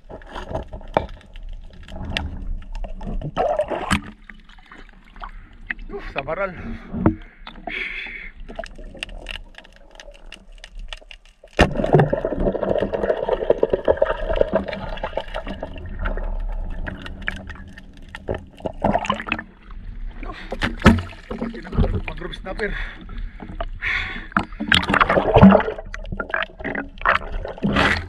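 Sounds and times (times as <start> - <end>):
water rushing and gurgling: 11.6 - 28.0.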